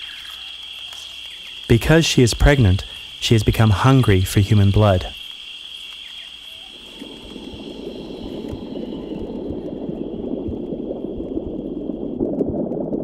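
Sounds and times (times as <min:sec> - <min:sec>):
bubbling gurgling liquid: 0:06.7 - 0:13.0.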